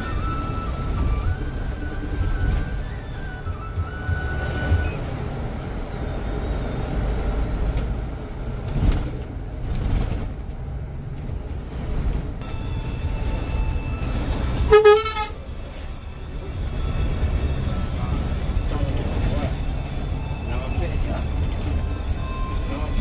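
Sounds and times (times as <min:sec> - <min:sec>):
heavy vehicle engine rumble: 0:00.0 - 0:23.0
vehicle horn blast: 0:14.6 - 0:15.4.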